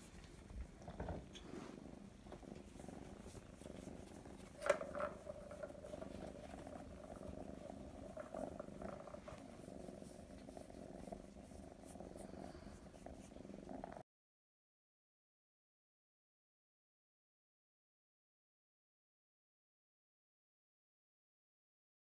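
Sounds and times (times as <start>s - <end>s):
kitten purring: 0.0s - 14.0s.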